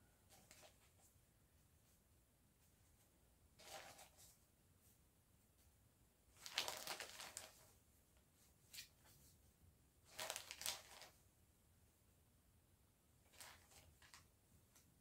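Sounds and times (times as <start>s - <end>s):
yarn rustling and crinkling: 3.6s - 4.4s, 6.4s - 7.8s, 10.1s - 11.2s, 13.2s - 14.3s.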